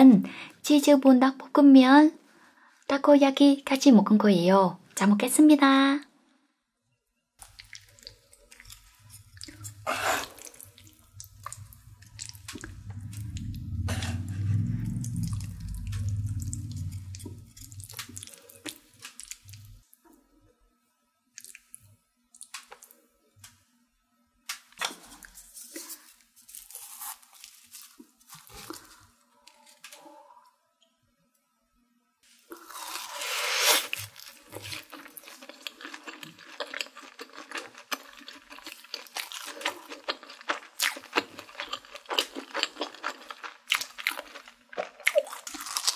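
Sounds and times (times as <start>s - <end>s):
low rumble: 9.0s - 19.8s.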